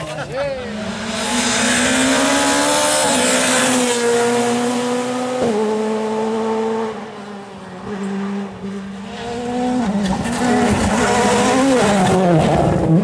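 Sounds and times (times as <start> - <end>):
rally car engine at high revs: 0.4 - 13.0.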